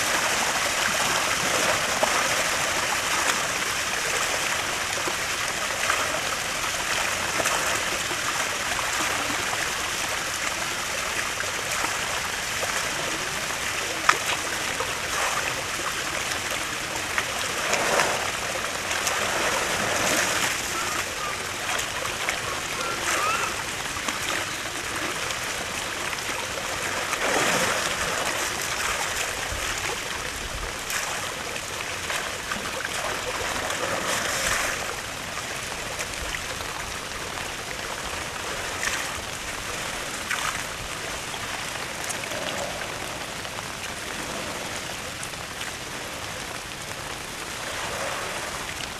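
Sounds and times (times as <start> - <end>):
water rushing: 0.0 - 48.9
elephant splashing in water: 11.3 - 35.8.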